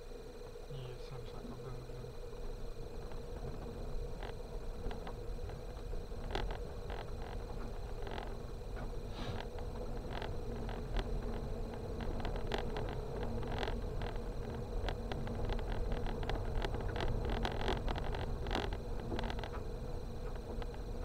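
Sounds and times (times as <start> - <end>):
car engine and tyre rumble: 0.0 - 21.0
sharp clicks and knocks from road: 2.2 - 21.0.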